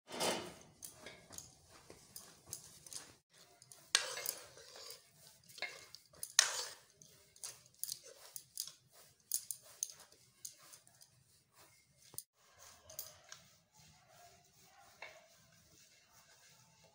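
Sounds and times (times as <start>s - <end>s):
ladle clinking and scraping pan: 0.1s - 1.5s, 3.6s - 10.6s.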